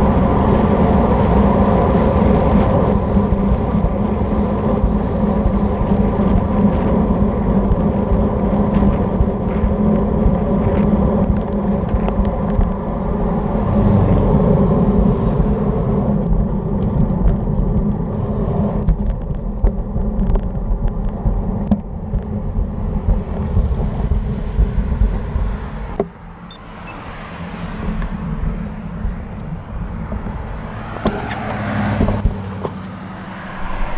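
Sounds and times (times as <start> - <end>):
bike tyres rumbling on pavement: 0.0 - 33.9
wind rushing over camera: 0.0 - 33.9
car driving past: 12.8 - 16.1, 23.3 - 33.9.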